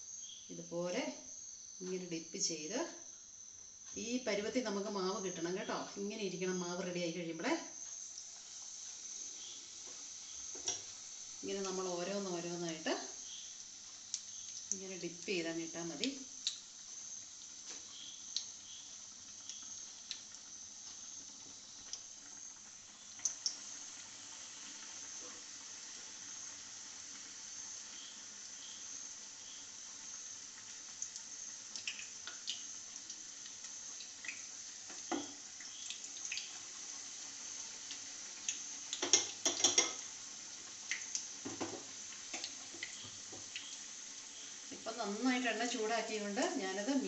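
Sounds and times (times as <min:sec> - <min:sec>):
batter deep-frying in hot oil: 0:00.0 - 0:47.0
oil popping and crackling: 0:09.4 - 0:27.4, 0:28.2 - 0:45.0.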